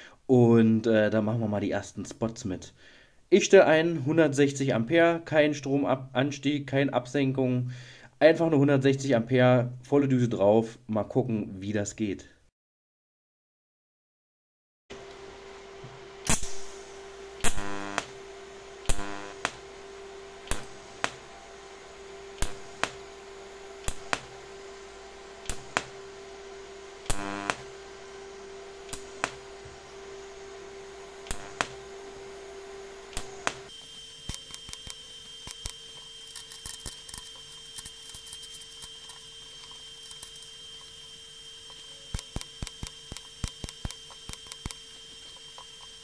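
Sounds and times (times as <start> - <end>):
welder hum: 14.9 - 46.0
welding arc buzz: 14.9 - 46.0
welding arc cracks: 16.2 - 28.0, 28.7 - 29.8, 31.2 - 31.9, 33.0 - 39.3, 42.1 - 45.0.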